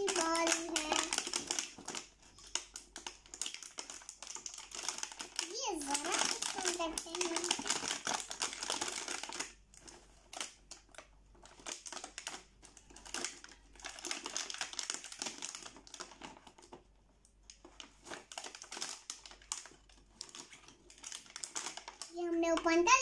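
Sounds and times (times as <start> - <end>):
plastic toy pieces clicking: 0.0 - 9.4
plastic packaging crinkling: 0.0 - 23.0.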